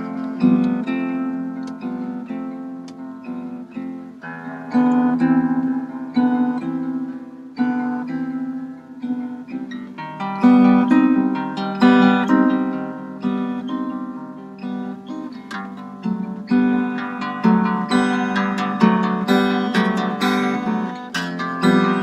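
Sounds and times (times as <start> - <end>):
fingerpicked harp guitar: 0.0 - 22.0.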